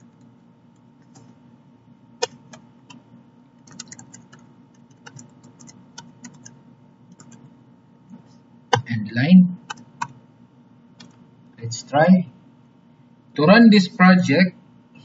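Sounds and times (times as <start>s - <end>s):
keyboard typing: 1.0s - 1.3s, 2.2s - 3.0s, 3.6s - 7.5s, 9.7s - 10.2s.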